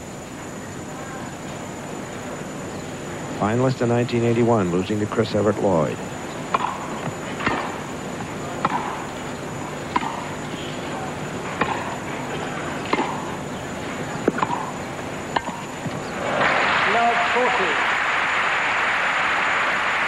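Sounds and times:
tennis ball hit by rackets: 6.5s - 9.1s, 9.9s - 10.4s, 11.5s - 12.1s, 12.8s - 13.4s, 14.1s - 16.4s.

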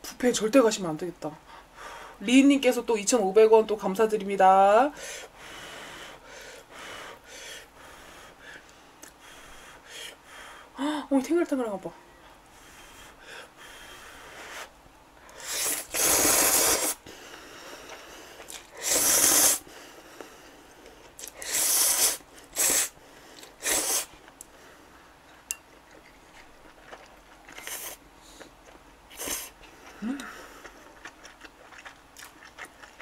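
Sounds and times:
person slurping noodles: 15.4s - 17.0s, 17.8s - 19.6s, 21.2s - 22.9s, 23.6s - 24.1s.

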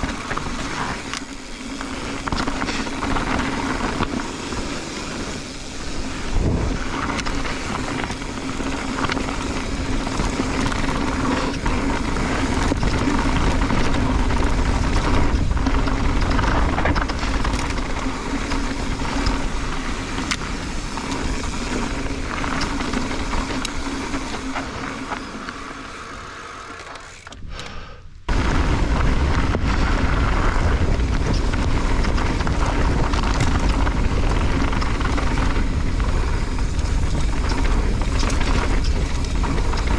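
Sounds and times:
wind buffeting microphone: 0.0s - 24.6s, 28.3s - 39.9s
tyres crunching on gravel: 0.0s - 27.2s
bike rattling: 0.0s - 39.9s.

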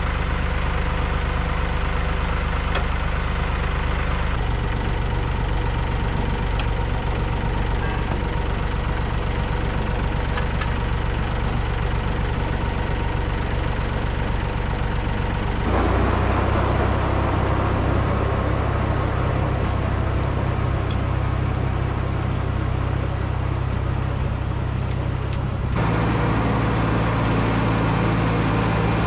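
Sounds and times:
tractor diesel engine: 0.0s - 29.0s
mower deck noise: 4.4s - 17.2s.

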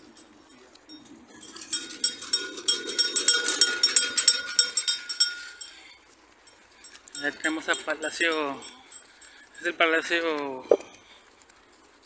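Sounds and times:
small metal bells ringing: 0.0s - 10.6s.

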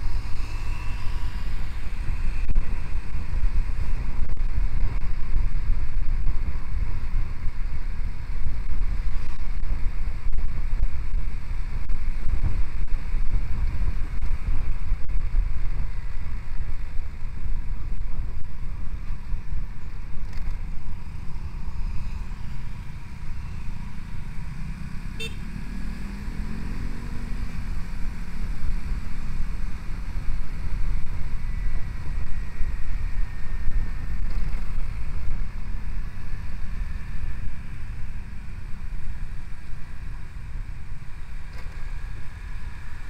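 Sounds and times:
road rumble: 0.0s - 43.0s
motorcycle engine: 20.2s - 43.0s.

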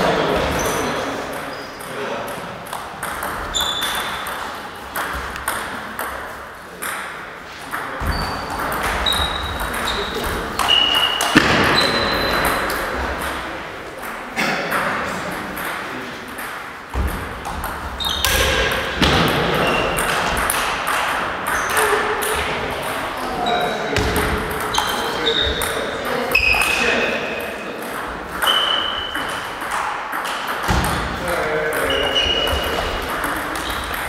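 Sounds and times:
shoes squeaking on wooden floor: 3.4s - 4.3s, 8.0s - 12.7s, 17.9s - 20.1s, 23.4s - 27.0s, 31.8s - 34.0s.

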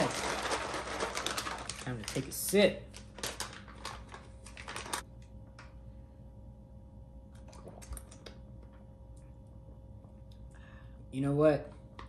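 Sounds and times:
plastic pouches crinkling: 0.0s - 5.1s.

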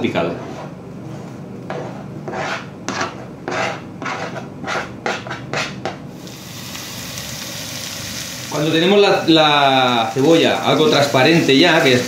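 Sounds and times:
scraping on plastic cutting board: 0.2s - 6.0s
onion and garlic sizzling in oil: 6.1s - 12.0s.

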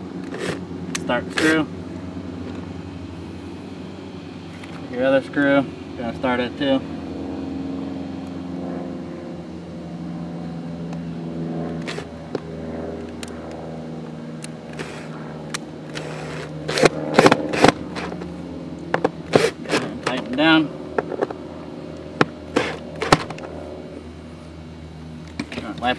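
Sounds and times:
cordless drill motor whining: 14.6s - 15.2s, 15.8s - 20.3s.

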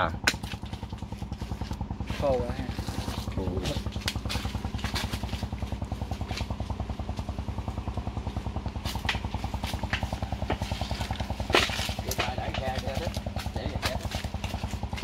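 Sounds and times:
small engine puttering: 0.0s - 15.0s
footsteps crunching dry leaves: 1.5s - 6.3s.

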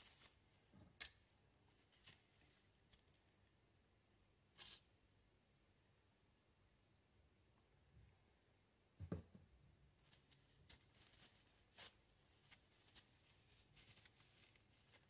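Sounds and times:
soft knock: 9.0s - 9.5s
paper towel rustling: 10.0s - 15.0s.

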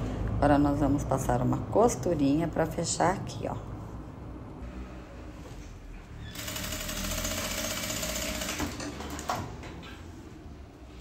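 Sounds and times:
sewing machine stitching: 6.3s - 9.3s.

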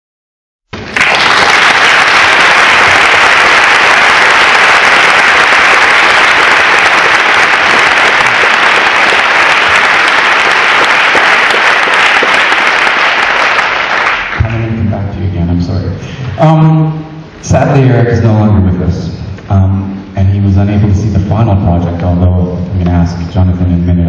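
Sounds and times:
audience applauding: 0.8s - 14.7s.

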